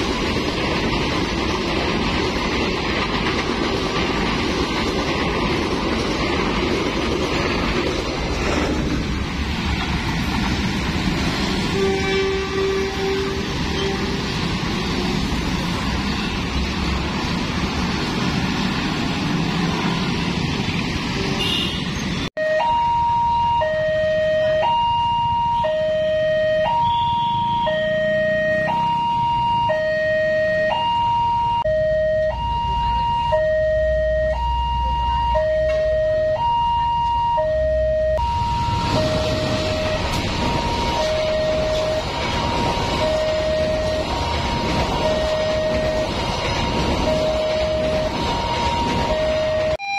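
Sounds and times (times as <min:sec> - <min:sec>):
passing train rumble: 0:00.0 - 0:49.9
traffic noise: 0:00.0 - 0:49.9
level crossing alarm two-tone: 0:22.4 - 0:49.9.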